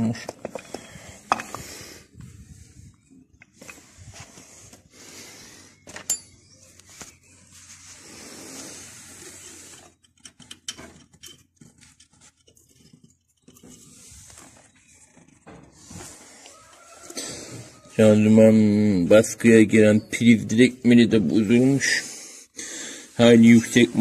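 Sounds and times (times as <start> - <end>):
metal parts clicking and scraping: 0.2 - 1.6, 5.8 - 6.4, 9.2 - 17.0.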